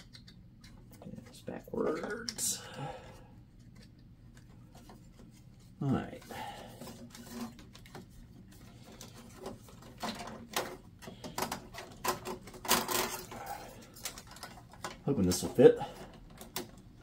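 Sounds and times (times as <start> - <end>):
cables and connectors clicking: 0.0 - 2.5.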